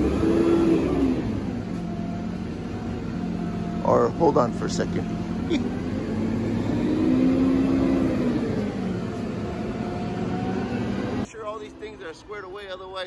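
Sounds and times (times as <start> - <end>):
truck engine running and revving: 0.0 - 11.3.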